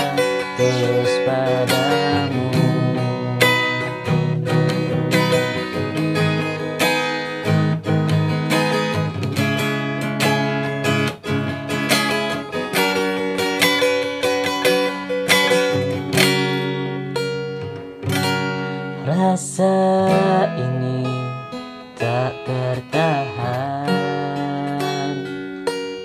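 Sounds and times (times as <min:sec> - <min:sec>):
acoustic guitar strumming chords: 0:00.0 - 0:26.0.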